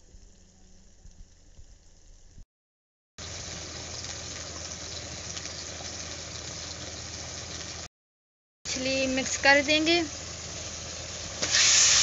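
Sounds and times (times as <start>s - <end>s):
onion sizzling in hot oil: 3.2s - 7.9s, 8.7s - 12.0s.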